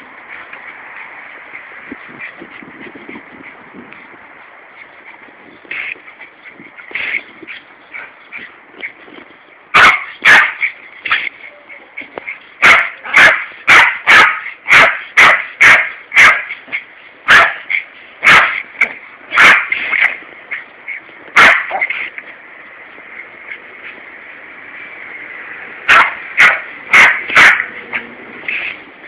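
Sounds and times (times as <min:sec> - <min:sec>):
small dog barking: 0:09.7 - 0:10.7, 0:12.6 - 0:16.5, 0:17.3 - 0:18.6, 0:19.3 - 0:20.1, 0:21.4 - 0:22.0, 0:25.9 - 0:27.7.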